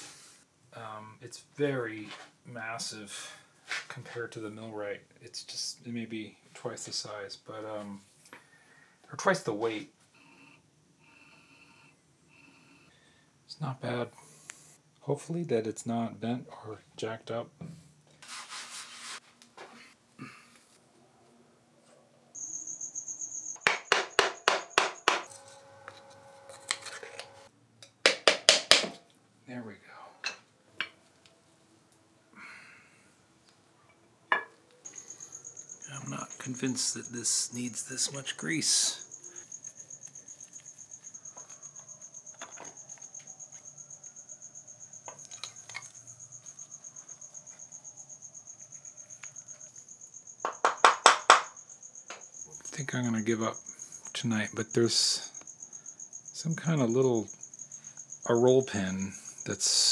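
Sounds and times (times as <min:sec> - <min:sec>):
high pulsing chirp: 0:22.4 - 0:23.6
sharp metal knocks: 0:23.6 - 0:25.3.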